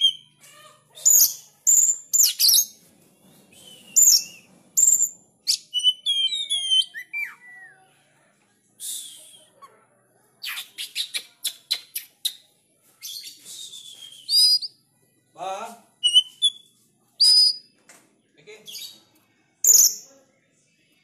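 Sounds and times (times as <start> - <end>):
bird singing varied song: 0.0 - 0.4, 1.0 - 7.9, 13.0 - 20.1.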